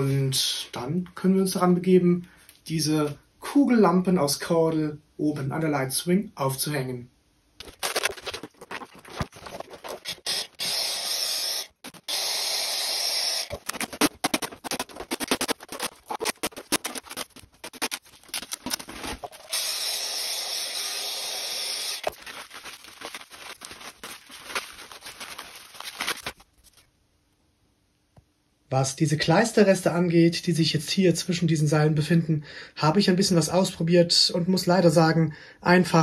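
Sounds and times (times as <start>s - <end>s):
plastic crackling and rustling: 7.6s - 10.6s, 13.4s - 19.6s, 21.8s - 26.9s.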